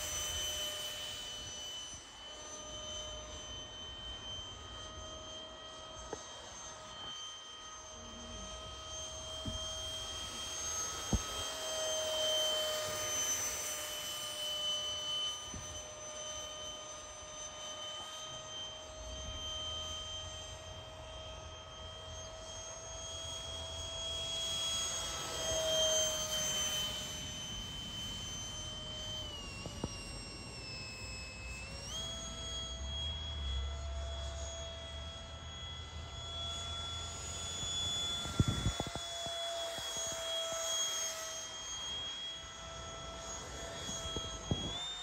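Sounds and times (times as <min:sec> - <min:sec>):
electric ducted fan whining: 0:00.0 - 0:45.0.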